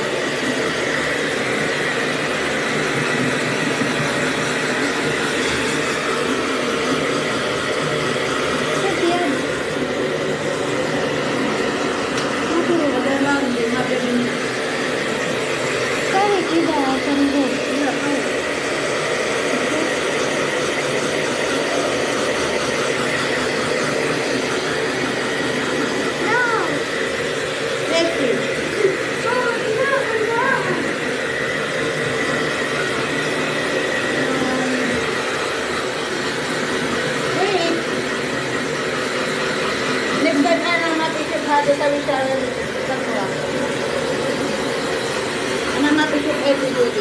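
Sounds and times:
hair dryer blowing: 0.0 - 47.0.

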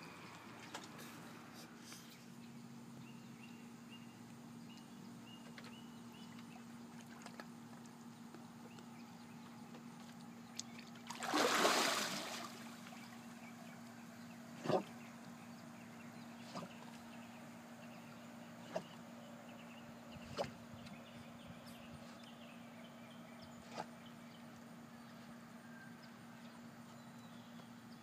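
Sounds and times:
dog splashing into water: 11.1 - 12.7.

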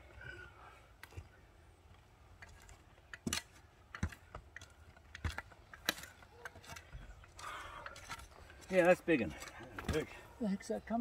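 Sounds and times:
shovels scraping dirt: 2.2 - 10.4.

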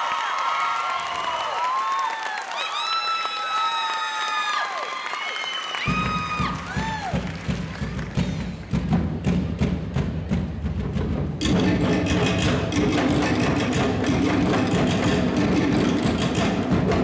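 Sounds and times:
drum ensemble fast driving beat: 5.8 - 17.0.

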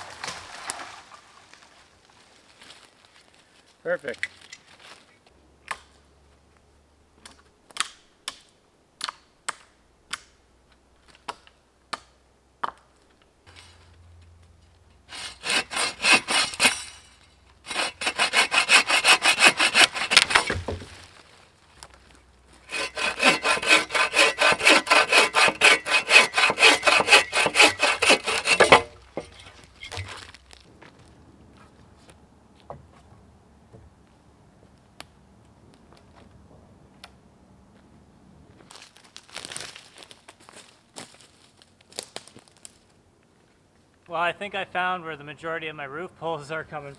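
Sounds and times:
bow saw cutting wood: 15.1 - 17.0, 17.6 - 20.8, 22.7 - 29.5.

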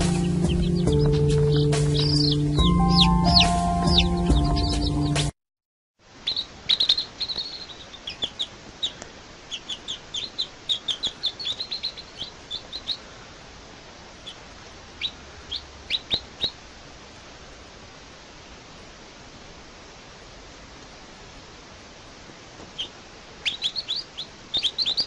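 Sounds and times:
baby chicks peeping: 0.0 - 5.3, 6.2 - 16.7, 22.6 - 25.0
steady hiss: 6.0 - 25.0.

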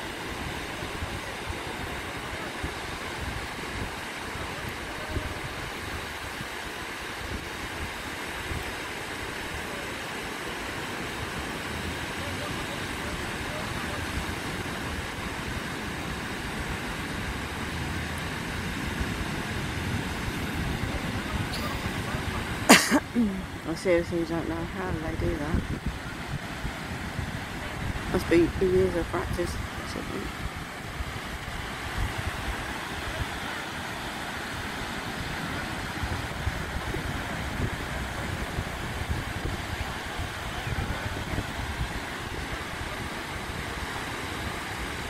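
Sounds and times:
waves rushing on beach: 0.0 - 45.0
wind buffeting microphone: 12.7 - 45.0.

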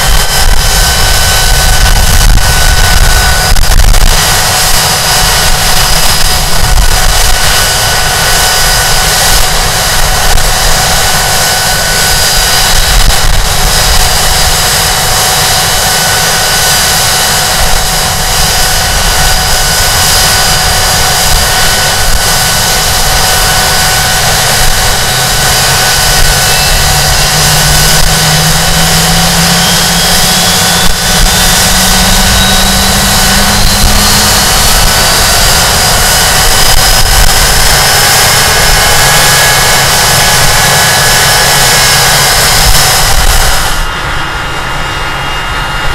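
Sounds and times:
jet engine rush and whine: 0.0 - 45.9
tones rising in pitch: 26.4 - 35.1.

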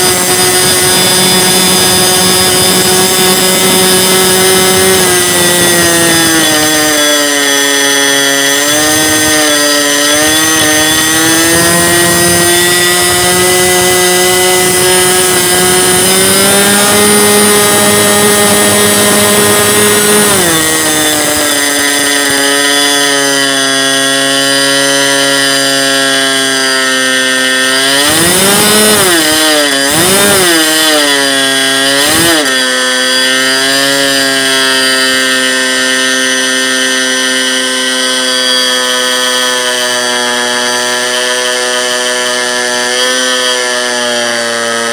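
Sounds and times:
two-stroke glow engine running: 0.0 - 5.7.

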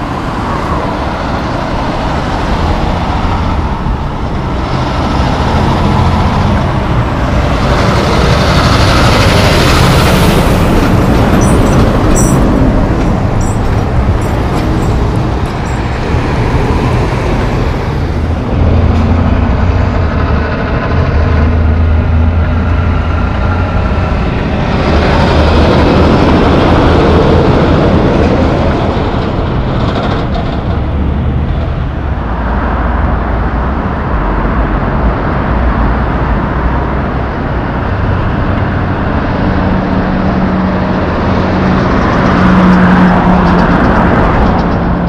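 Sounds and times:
heavy diesel trucks passing: 0.0 - 45.0
tyre and road noise: 0.0 - 45.0
sharp rattles and clanks: 8.7 - 16.8, 28.8 - 31.7.

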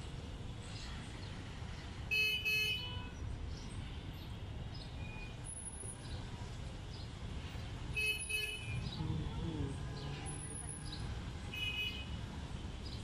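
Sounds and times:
traffic rumble: 3.1 - 13.0.

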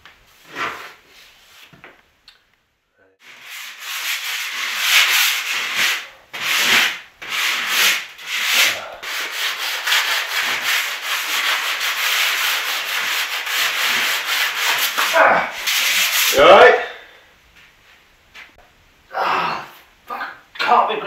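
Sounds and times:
sanding sponge rasping on wood: 3.2 - 16.5.

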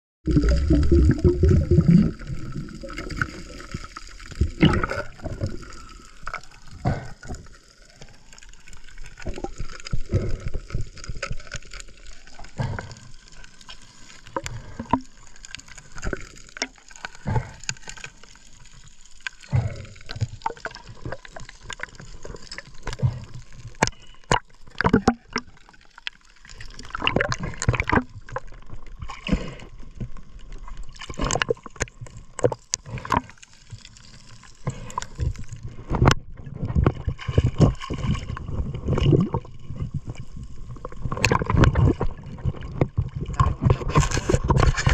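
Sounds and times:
gurgling bubbles: 0.2 - 44.9
underwater knocks and scrapes: 0.3 - 44.9.

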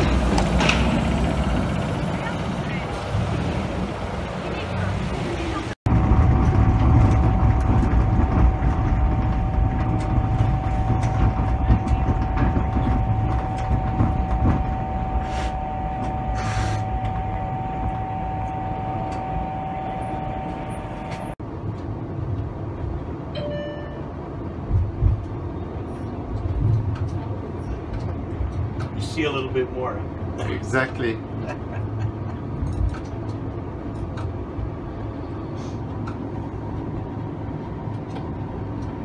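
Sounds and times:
steady whine: 0.0 - 21.8
streetcar low rumble: 0.0 - 39.0
short hisses: 16.4 - 16.8.

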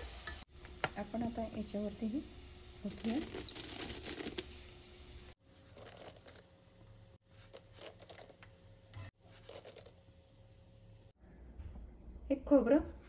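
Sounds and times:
peanuts pattering onto puffed rice: 2.8 - 4.5.

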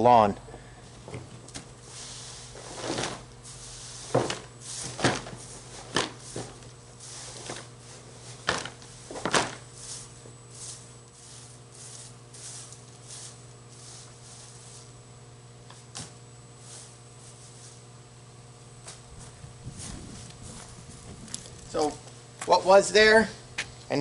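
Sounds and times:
leaves rustling and scraping: 1.8 - 15.0, 15.6 - 18.0, 18.7 - 22.0.

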